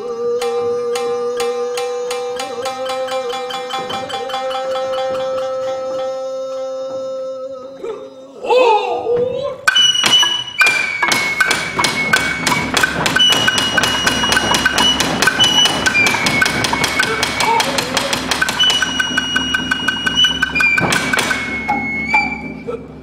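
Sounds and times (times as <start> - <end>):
wooden percussion strikes: 0.0 - 7.2, 9.2 - 23.0
bamboo flute high notes: 8.5 - 23.0.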